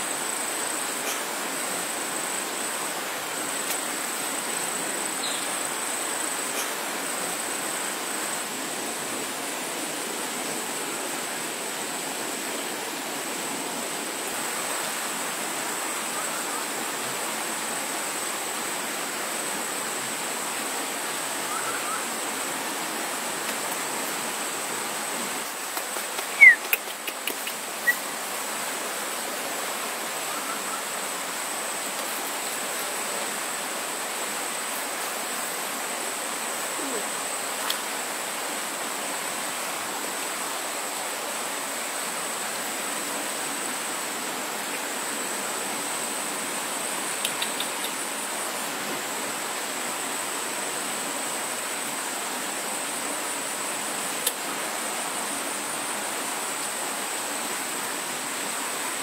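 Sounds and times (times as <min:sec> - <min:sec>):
rushing hiss: 0:00.0 - 0:59.0
high-pitched insect tone: 0:00.1 - 0:08.7, 0:20.4 - 0:28.8
sharp chirps: 0:26.3 - 0:26.7.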